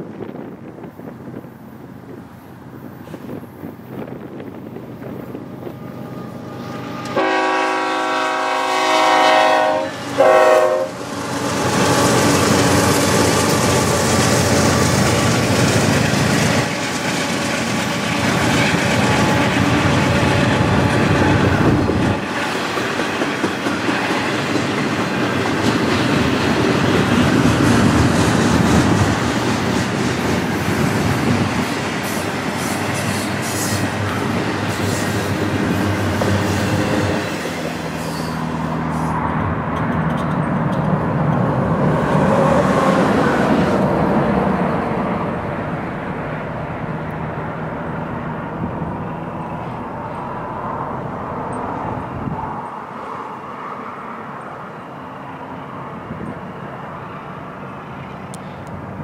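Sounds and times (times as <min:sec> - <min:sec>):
locomotive engines rumbling: 0:00.0 - 0:53.6
locomotive air horn: 0:05.7 - 0:11.0
freight cars clacking over rails: 0:11.1 - 0:38.6.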